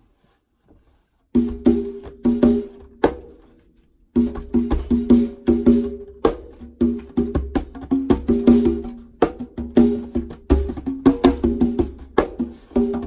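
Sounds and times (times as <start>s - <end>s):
conga drums played by hand: 1.4s - 3.5s, 4.2s - 13.0s.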